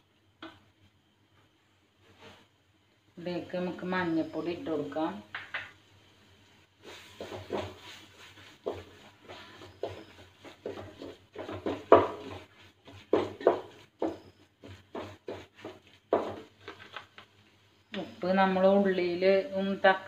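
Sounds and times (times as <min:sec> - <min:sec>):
spatula scraping metal pot: 0:06.8 - 0:16.9.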